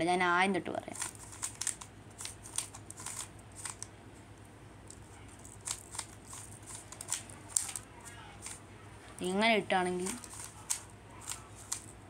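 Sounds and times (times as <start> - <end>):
puzzle cube layers clicking: 0.9 - 3.9, 4.9 - 8.6, 10.0 - 11.9.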